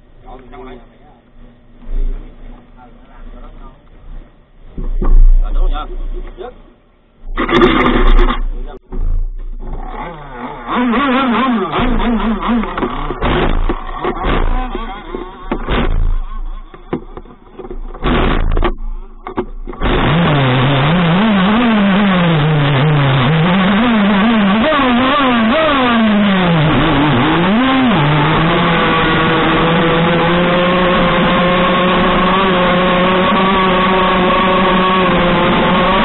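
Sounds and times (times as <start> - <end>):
small two-stroke boat engine revving: 9.0 - 16.7, 19.7 - 36.0.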